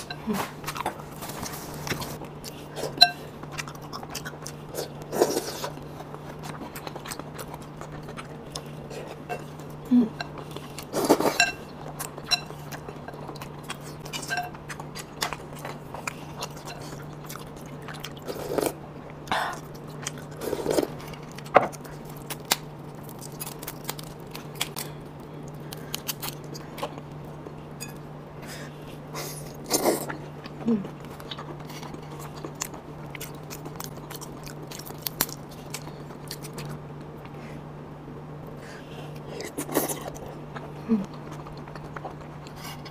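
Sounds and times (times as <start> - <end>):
chewing: 0.0 - 37.4, 38.5 - 42.9
faint steady hum: 0.0 - 42.9.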